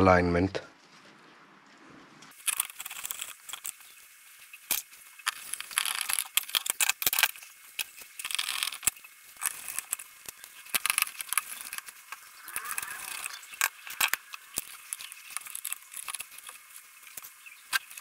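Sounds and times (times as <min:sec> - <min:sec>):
screwdriver clicking and scraping metal: 0:04.7 - 0:18.0.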